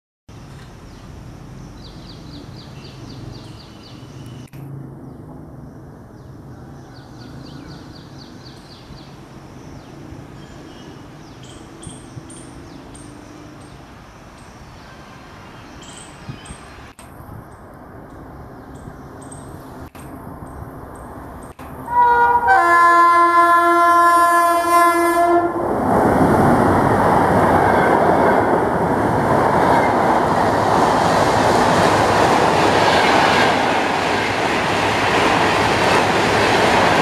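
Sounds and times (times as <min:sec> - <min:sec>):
birds chirping: 0:00.9 - 0:21.6.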